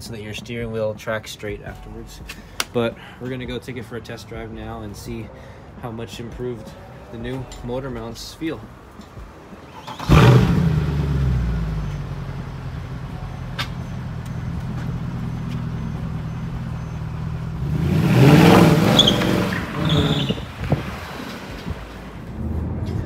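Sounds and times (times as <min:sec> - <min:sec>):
car engine starting and idling: 0:07.5 - 0:23.0
car engine revving: 0:09.8 - 0:13.2, 0:16.1 - 0:23.0.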